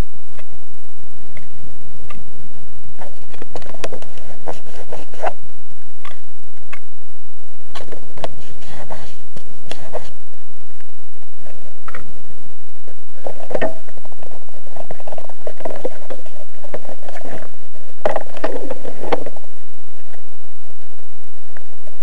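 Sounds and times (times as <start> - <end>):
handling clicks and scrapes: 13.2 - 19.4.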